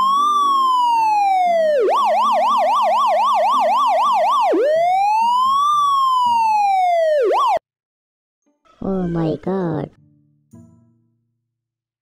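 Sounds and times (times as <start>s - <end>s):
electronic siren: 0.0s - 7.6s.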